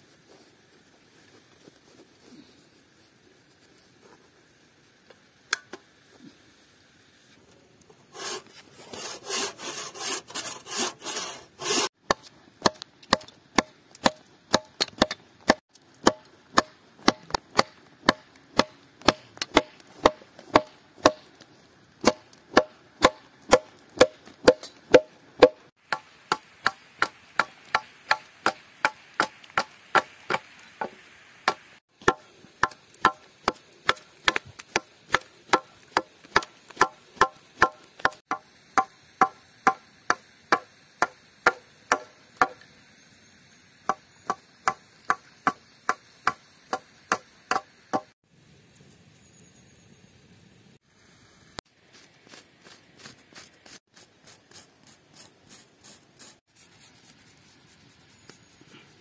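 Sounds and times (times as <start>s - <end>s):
bow saw rasping through log: 8.1s - 11.9s.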